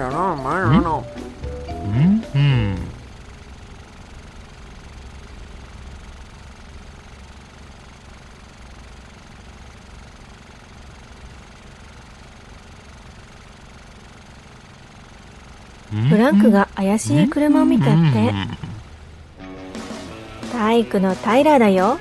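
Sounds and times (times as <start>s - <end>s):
cartoon engine running: 0.0s - 4.1s, 15.8s - 19.1s.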